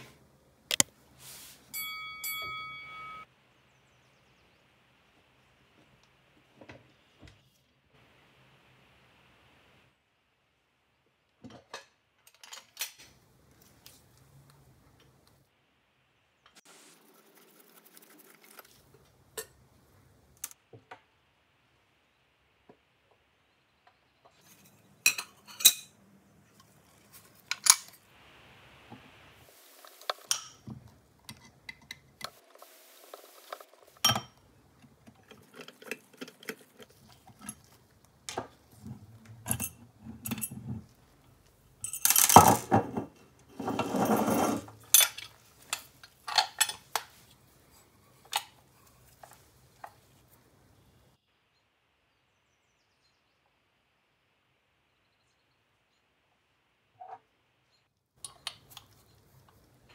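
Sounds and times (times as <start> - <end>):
metal parts clinking: 41.8 - 42.7.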